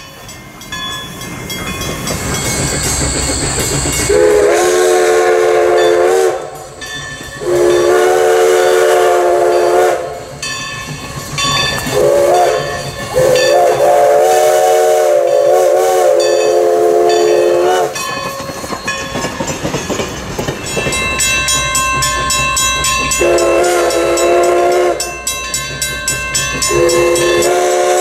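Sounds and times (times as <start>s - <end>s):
train wheels clicking over rail joints: 0.0s - 28.0s
steam whistle blowing: 4.0s - 6.7s, 7.4s - 10.3s, 11.9s - 18.0s, 23.2s - 25.1s, 26.7s - 28.0s.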